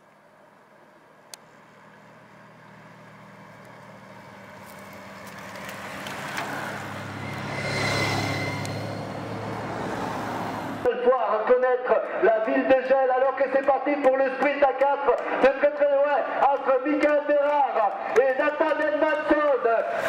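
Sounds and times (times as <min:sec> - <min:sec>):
vehicle engine passing: 0:01.5 - 0:10.9
tyre rush on road: 0:01.7 - 0:10.9.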